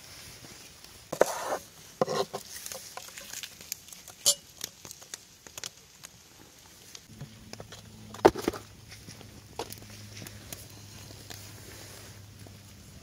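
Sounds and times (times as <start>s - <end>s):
objects being handled: 1.1s - 5.2s.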